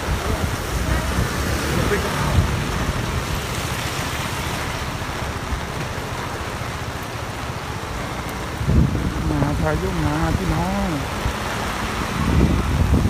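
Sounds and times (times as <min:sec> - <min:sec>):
heavy rain pouring on street: 0:00.0 - 0:13.0.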